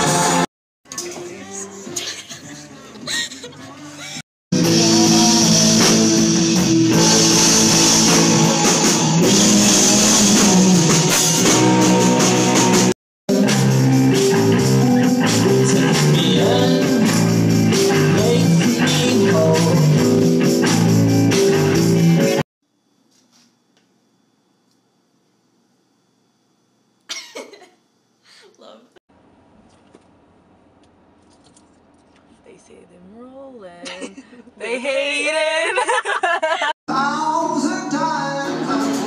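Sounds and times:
bass guitar: 0.0s - 1.3s, 4.6s - 22.4s, 36.9s - 39.0s
drum kit: 0.0s - 1.4s, 4.6s - 22.4s, 36.9s - 39.0s
electric guitars: 4.6s - 22.4s, 36.9s - 39.0s.

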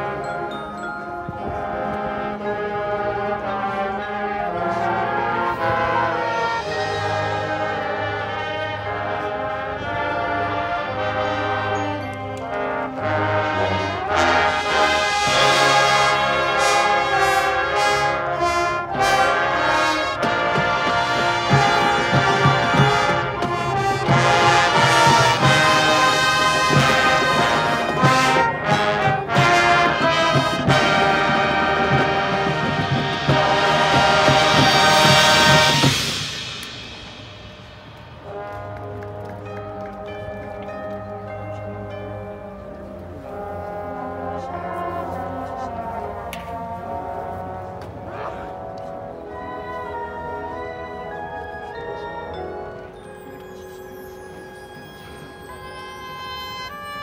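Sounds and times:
marching percussion: 0.0s - 42.8s
brass section sustained chords: 1.2s - 57.0s
sharp percussion hits: 20.2s - 39.6s.

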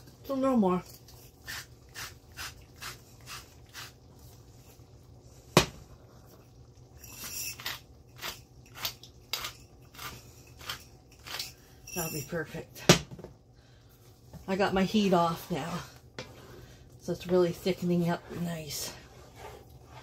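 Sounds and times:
salt and pepper grinders grinding: 0.8s - 4.0s, 7.0s - 12.4s.

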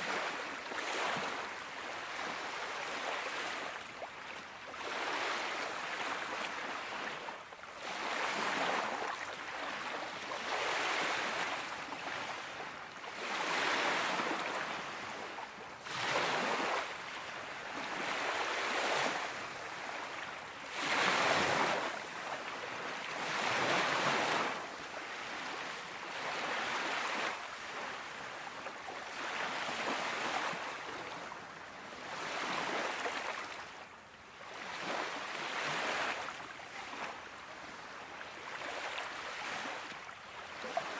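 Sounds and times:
small waves washing onto beach: 0.0s - 40.9s.

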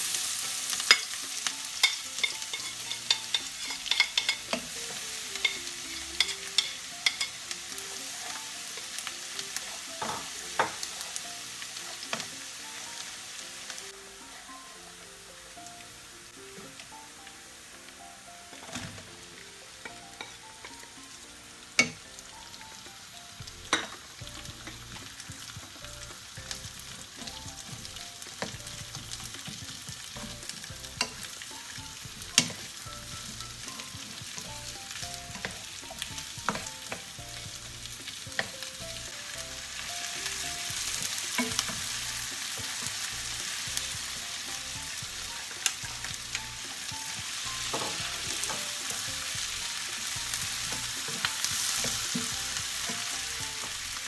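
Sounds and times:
onions sizzling in a frying pan: 0.0s - 54.0s
wooden spoon knocking on pan: 10.0s - 10.9s, 35.3s - 37.6s.

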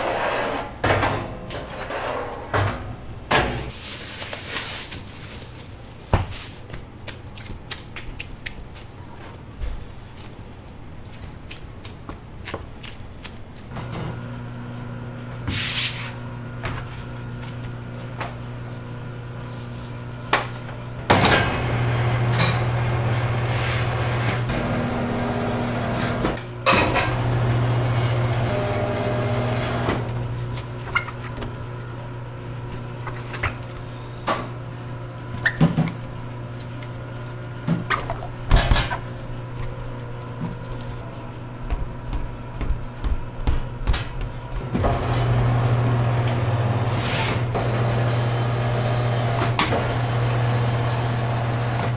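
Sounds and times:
low machine hum: 16.1s - 51.9s.

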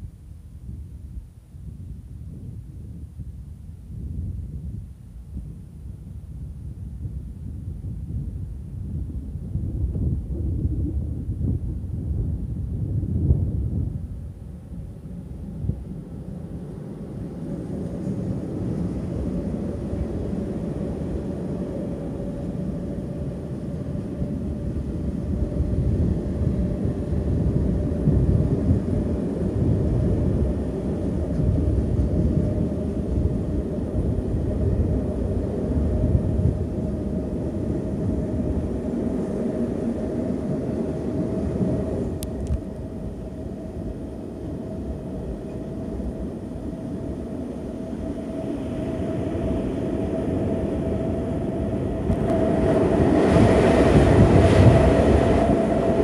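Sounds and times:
freight train wheels rumbling on rail: 1.8s - 56.0s
thin steady whine: 14.0s - 56.0s.

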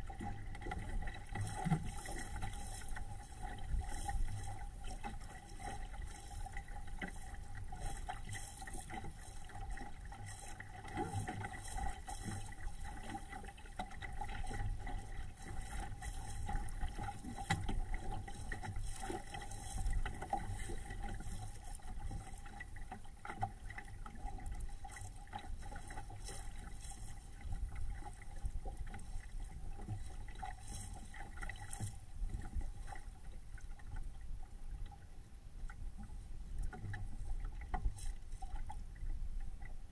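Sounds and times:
faint steady hum: 0.0s - 39.9s
water rushing along a hull: 0.0s - 39.9s.

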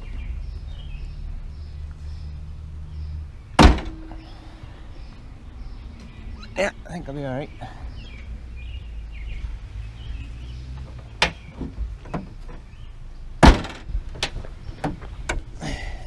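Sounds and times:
sharp knocks on car hood: 3.6s - 4.1s, 13.4s - 13.9s
loud thump: 3.6s - 4.2s, 13.4s - 13.9s.

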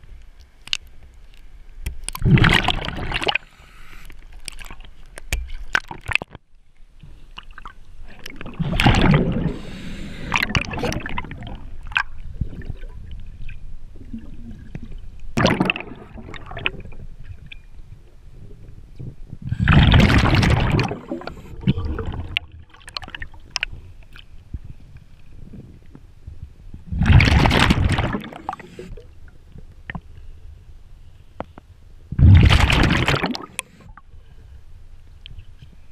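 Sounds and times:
exhaled air bubbling underwater: 2.0s - 5.0s, 7.4s - 26.0s, 26.7s - 30.5s, 32.1s - 34.3s.

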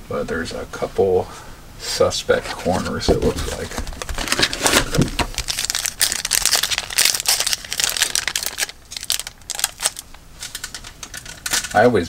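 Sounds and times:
plastic wrapper crinkling: 2.8s - 11.9s.

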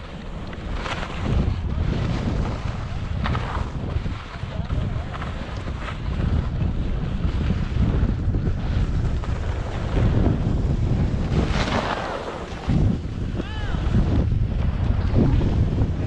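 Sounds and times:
skis sliding and scraping on snow: 0.0s - 16.0s
wind buffeting microphone: 0.0s - 16.0s.

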